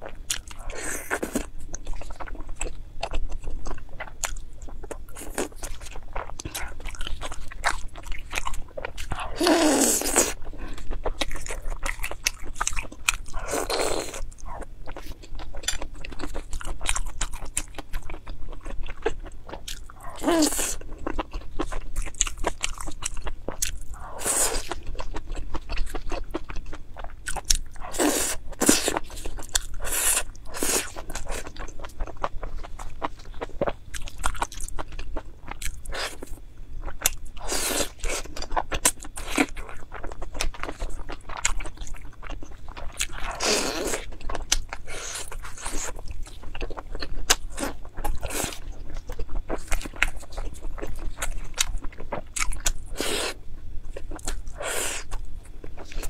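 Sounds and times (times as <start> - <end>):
close-up chewing and biting: 0.0 - 56.0.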